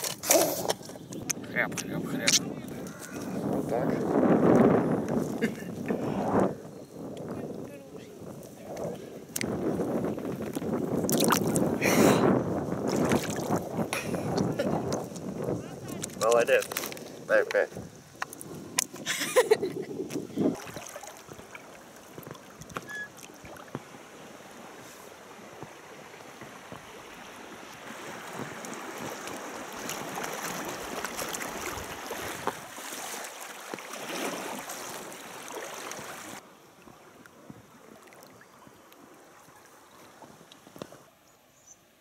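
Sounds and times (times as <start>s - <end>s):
river water rushing: 20.5s - 37.2s.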